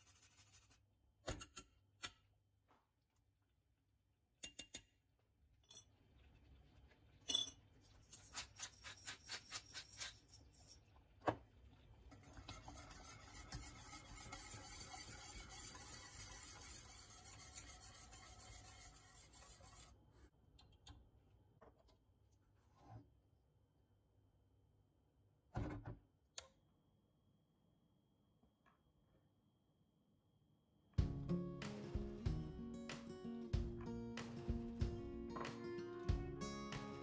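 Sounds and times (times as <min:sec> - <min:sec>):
whisk scraping in saucepan: 0:08.1 - 0:10.8, 0:12.2 - 0:20.0.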